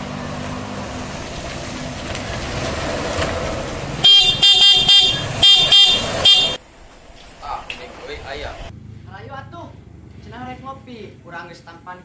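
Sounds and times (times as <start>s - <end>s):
outdoor background noise: 0.0s - 12.0s
vehicle horn short beeps: 4.0s - 6.6s.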